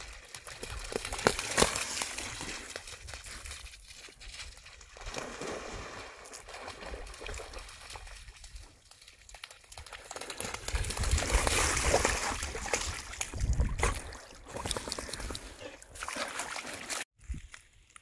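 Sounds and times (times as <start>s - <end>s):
dog splashing in water: 9.2s - 17.1s.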